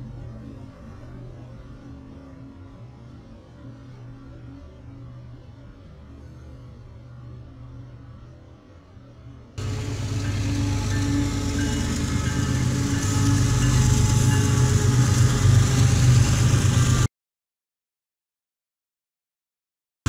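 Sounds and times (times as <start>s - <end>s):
locomotive engine drone: 9.6s - 17.1s
train wheels rushing on rails: 9.6s - 17.1s.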